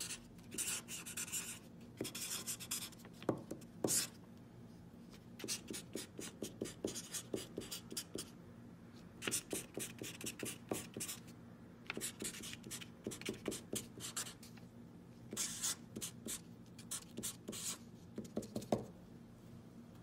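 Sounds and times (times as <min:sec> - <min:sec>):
marker scratching on card: 0:15.3 - 0:18.8.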